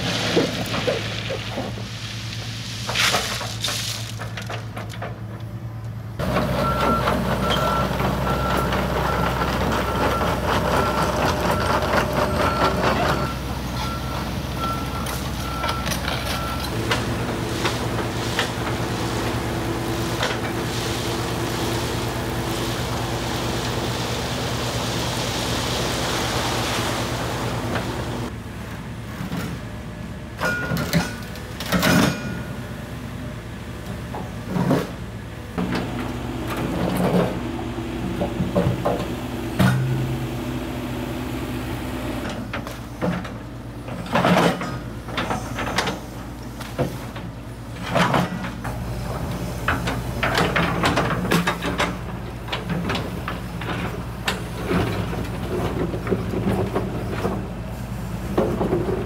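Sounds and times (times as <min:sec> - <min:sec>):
excavator diesel engine running: 0:00.0 - 0:59.0
rushing hiss: 0:17.4 - 0:28.3.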